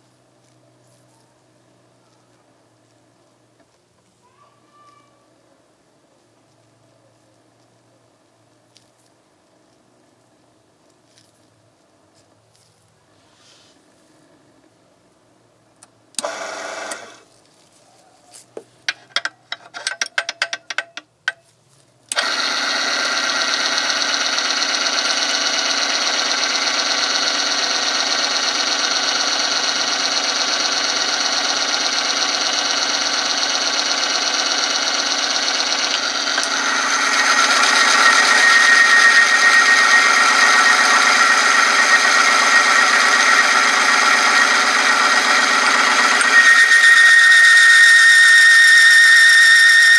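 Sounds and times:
electric motor running: 16.2 - 17.2, 22.1 - 49.9
handling clicks and knocks: 18.4 - 21.5
high steady whine: 22.1 - 49.9.

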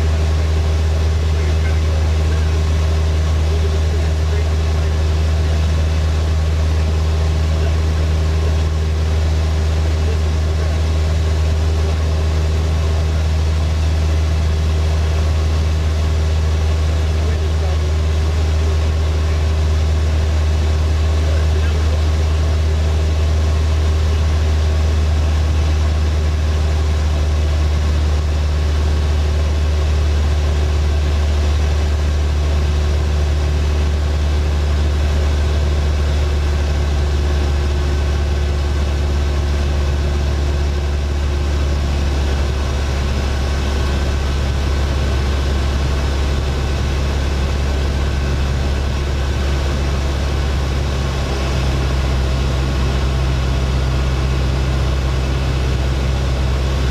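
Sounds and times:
plane engine and propeller droning: 0.0 - 56.9.

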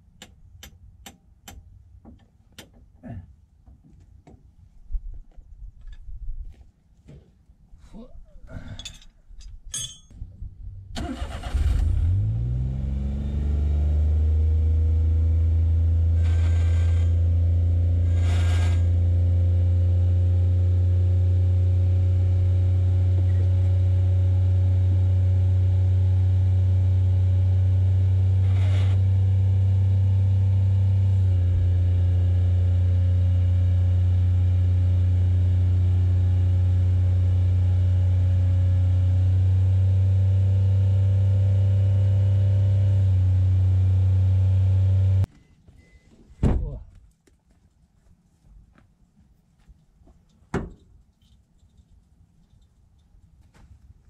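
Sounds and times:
truck engine starting and running: 10.8 - 45.3.

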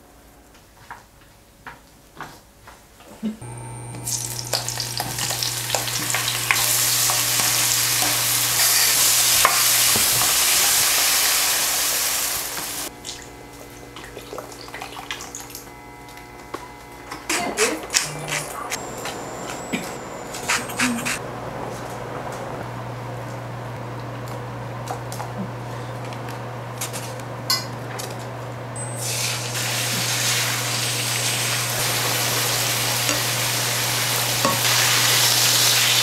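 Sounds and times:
cooktop hum: 3.4 - 36.0
food sizzling in a wok: 3.5 - 12.9, 28.9 - 36.0.

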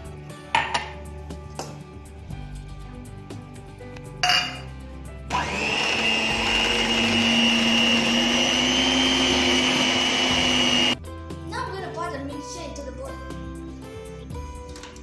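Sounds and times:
stand mixer motor whining: 5.3 - 11.0.

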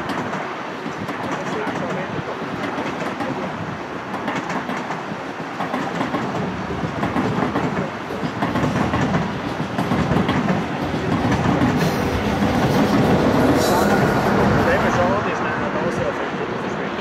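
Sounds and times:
clicks at rail joints: 0.0 - 3.4
train wheels rumbling on rails: 0.0 - 17.0.

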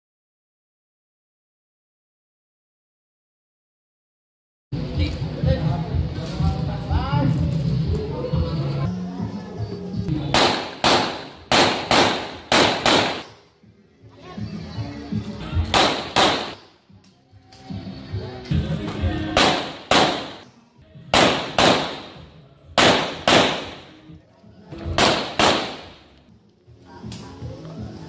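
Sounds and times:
background music: 4.8 - 28.0
pistol shots with echo: 10.2 - 13.4, 15.7 - 16.7, 19.3 - 24.0, 25.0 - 26.1.

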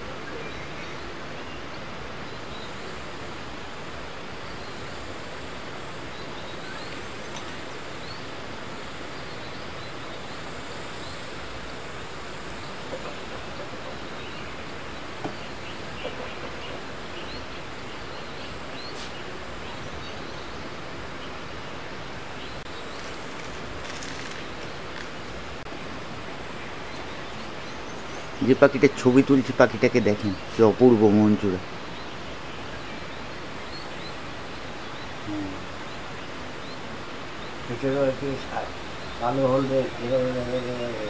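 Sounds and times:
bird chirps: 6.0 - 8.4, 9.0 - 21.8.

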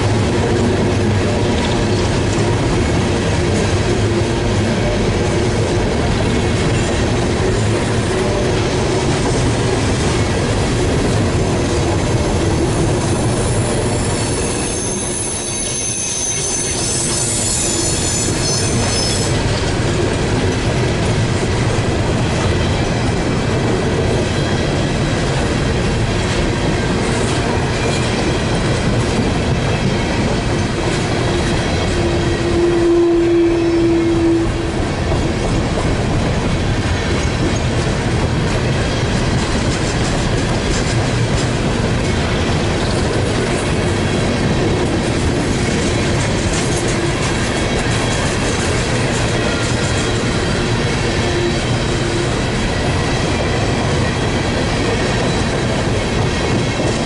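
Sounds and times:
train wheels rumbling on rail: 0.0 - 57.0
high-pitched wheel squeal: 13.2 - 19.3.

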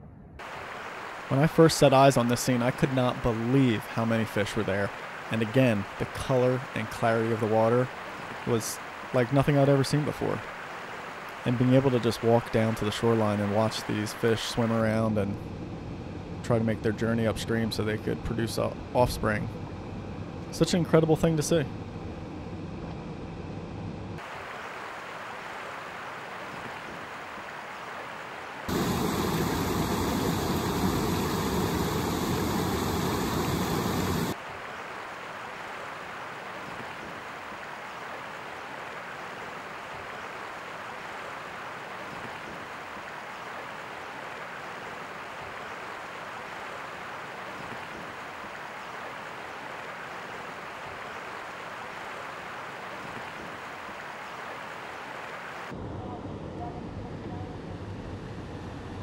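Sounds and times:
stream running over rocks: 0.4 - 14.8, 24.2 - 55.7.

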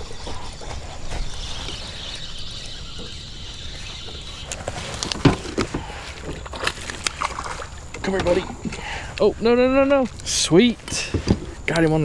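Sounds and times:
fishing reel whirring: 0.0 - 8.4.

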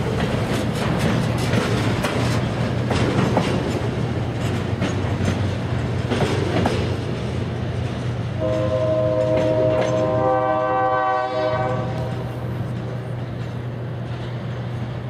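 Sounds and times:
locomotive engine hum: 0.0 - 15.0
train wheels clicking on rails: 0.0 - 15.0
locomotive air horn: 8.4 - 12.4.

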